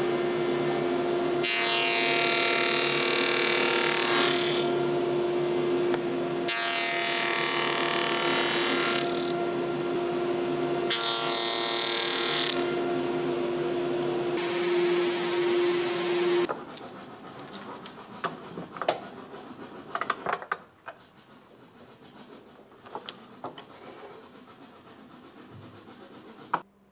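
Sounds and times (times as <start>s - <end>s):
table saw humming: 0.0s - 17.3s
saw cutting wood: 1.4s - 26.6s.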